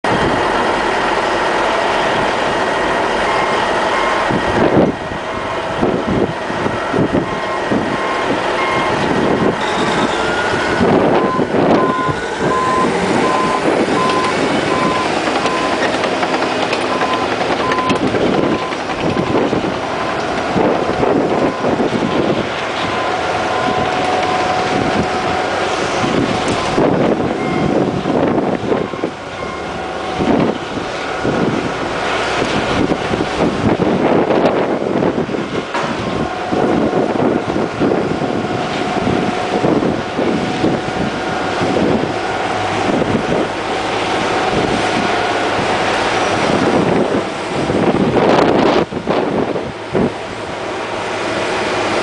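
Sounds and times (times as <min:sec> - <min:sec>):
bulldozer diesel engine: 0:00.0 - 0:52.0
backup alarm beeping: 0:03.2 - 0:04.4, 0:06.8 - 0:15.9, 0:16.9 - 0:19.5, 0:26.5 - 0:27.9, 0:28.7 - 0:30.5
tracks clanking over rock: 0:05.6 - 0:52.0.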